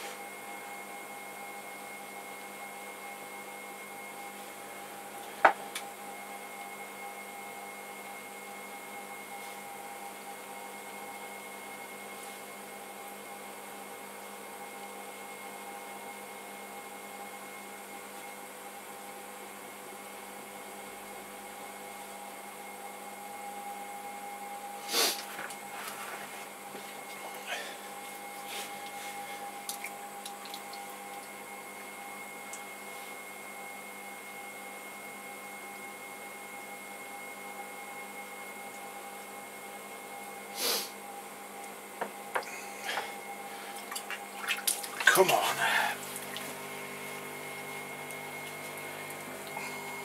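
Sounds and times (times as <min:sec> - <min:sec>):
potter's wheel motor whine: 0:45.1 - 0:50.0.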